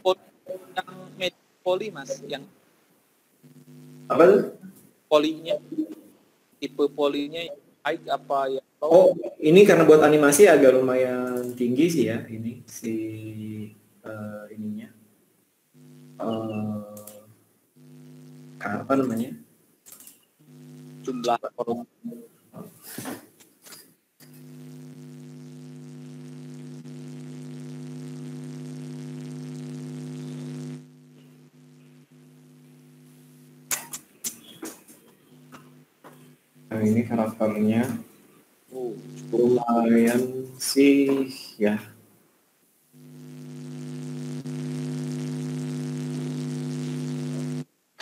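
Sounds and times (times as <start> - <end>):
buzzy electrical hum: 0.0 - 2.5, 3.4 - 6.0, 15.7 - 19.4, 20.0 - 21.4, 24.2 - 41.9, 42.8 - 47.7.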